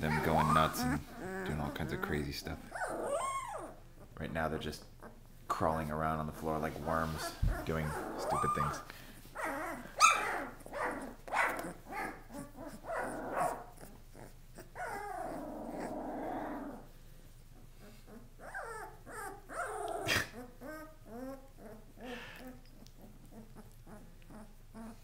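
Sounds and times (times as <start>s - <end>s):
puppies yipping: 0.0s - 2.1s, 2.7s - 3.8s, 7.1s - 8.8s, 9.4s - 16.7s
puppies whimpering: 0.0s - 4.1s, 7.0s - 11.0s, 11.6s - 16.9s, 17.8s - 25.0s
puppies growling: 0.0s - 4.2s, 6.9s - 17.0s, 17.6s - 25.0s.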